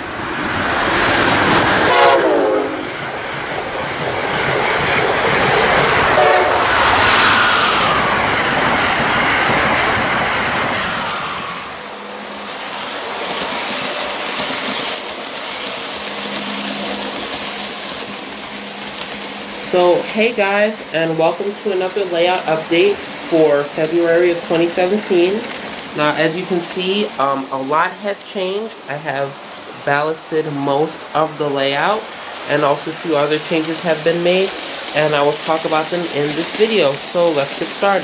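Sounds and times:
train passing at speed: 0.0s - 38.0s
train horn: 1.8s - 2.9s, 6.1s - 6.8s.

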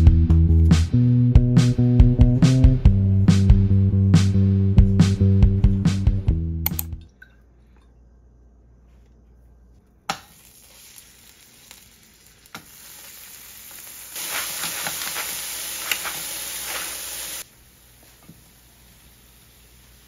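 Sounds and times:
garlic frying in oil: 10.1s - 20.0s
vegetables sizzling in hot oil: 10.2s - 20.0s.

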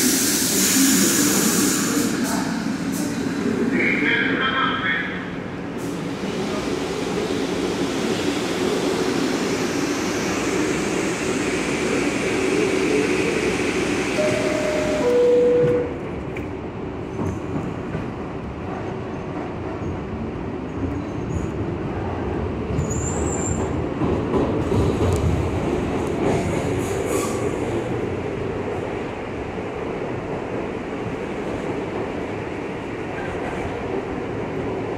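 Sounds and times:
train rumbling: 0.0s - 34.9s
train doors closing: 5.7s - 19.8s
two-note door chime: 14.2s - 15.9s.

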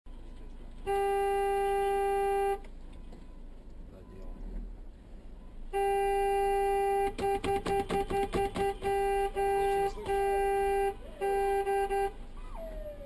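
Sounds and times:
vehicle horn blaring: 0.8s - 2.7s, 5.7s - 12.2s
faint siren wailing: 1.6s - 5.7s, 9.6s - 13.0s.

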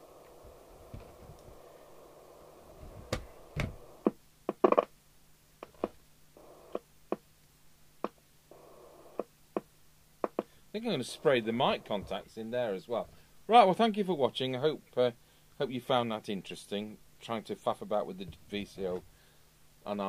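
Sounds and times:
faint hiss with low hum: 0.0s - 20.0s.

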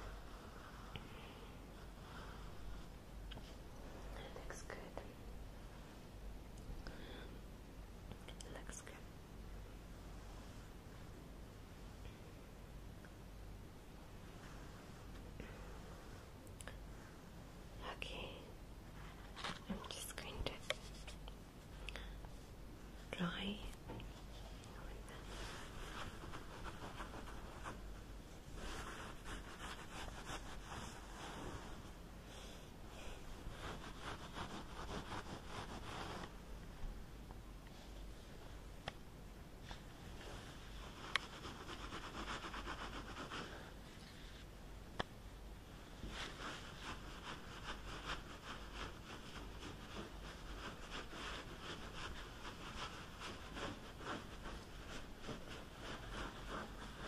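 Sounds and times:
close scratching and rubbing: 19.0s - 21.3s, 24.2s - 32.0s, 33.2s - 36.4s, 40.2s - 44.5s, 46.0s - 57.0s.

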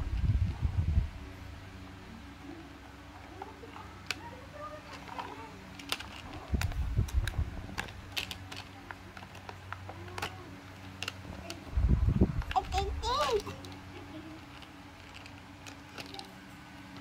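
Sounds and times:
low rumble of handling: 0.0s - 17.0s
plastic toy cars clicking: 3.7s - 11.6s, 12.4s - 17.0s.

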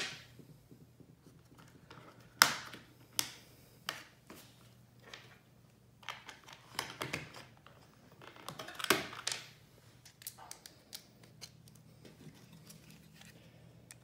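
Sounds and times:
plastic parts and tools clattering: 6.0s - 14.0s.

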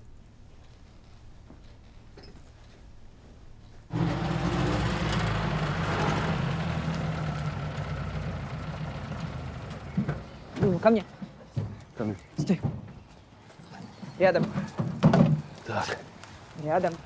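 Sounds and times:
jeep engine running: 3.9s - 11.0s.

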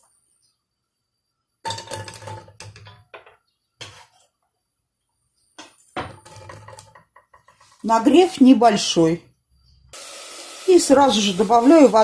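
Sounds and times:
chopped onion clattering into metal pot: 1.6s - 4.2s, 5.6s - 7.9s.

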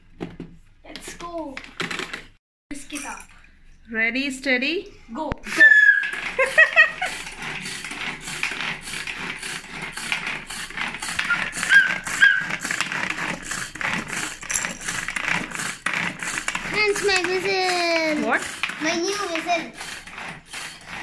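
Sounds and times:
hand chopper whirring rattle: 5.5s - 21.0s.

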